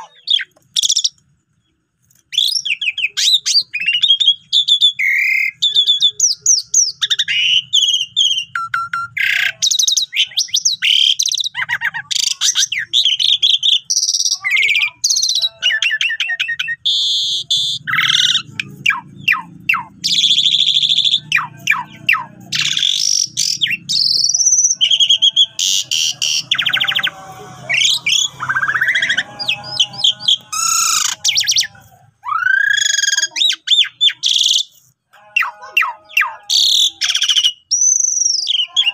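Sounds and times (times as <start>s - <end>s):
starling singing: 0.0s - 1.2s, 2.3s - 38.9s.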